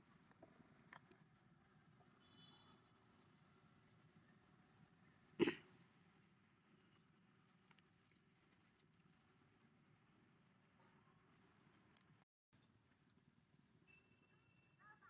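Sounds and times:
short cough-like sound: 0:05.4 - 0:05.7.

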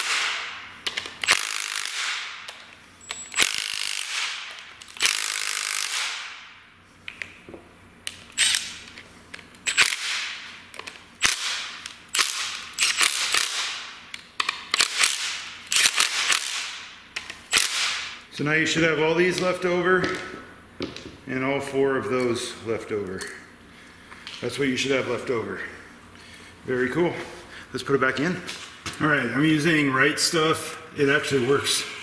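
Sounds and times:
ratchet wrench clicking: 0:00.9 - 0:06.1.

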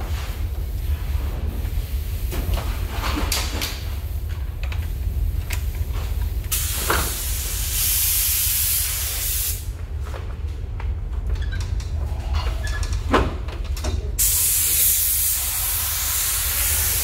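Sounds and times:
steady low hum: 0:00.0 - 0:17.0
paint spray gun hissing: 0:06.5 - 0:09.6, 0:14.2 - 0:17.0.

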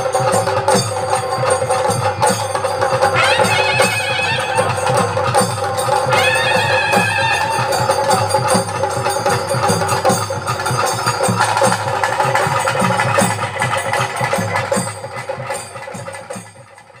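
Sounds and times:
drums beating quick rhythm: 0:00.0 - 0:17.0
droning wind instrument melody: 0:02.9 - 0:09.4.

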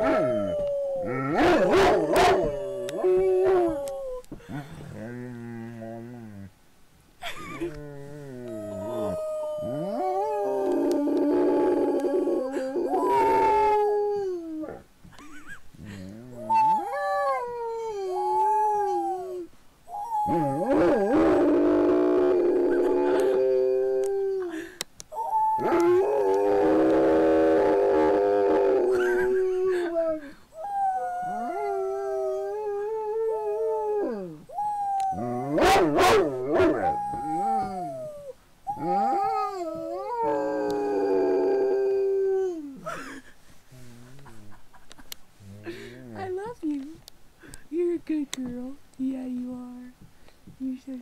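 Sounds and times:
dog howling: 0:00.0 - 0:04.3, 0:08.3 - 0:14.8, 0:16.4 - 0:24.5, 0:25.2 - 0:29.9, 0:30.6 - 0:42.7.

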